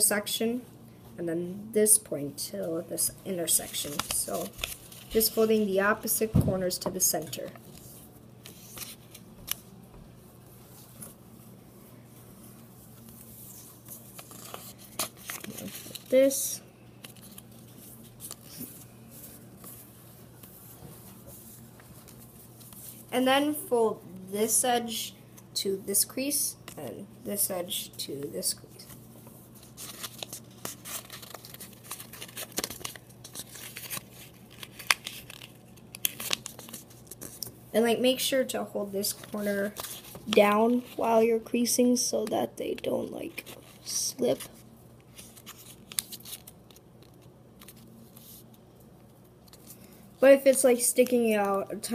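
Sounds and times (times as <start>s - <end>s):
paper rustling while folded: 3.3s - 9.7s, 10.4s - 23.2s, 28.4s - 41.4s, 42.7s - 48.6s
sharp paper crinkle: 3.5s - 5.6s, 12.8s - 19.8s, 28.8s - 37.5s, 39.0s - 41.2s, 43.3s - 48.6s.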